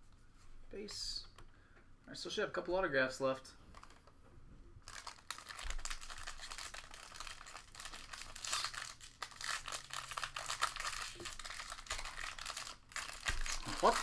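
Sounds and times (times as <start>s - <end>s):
foil wrapper crinkling and tearing: 4.8s - 14.0s.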